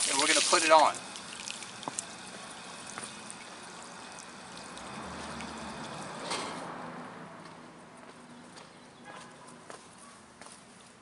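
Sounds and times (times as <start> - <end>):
water pouring from hose onto pavement: 0.0 - 6.3.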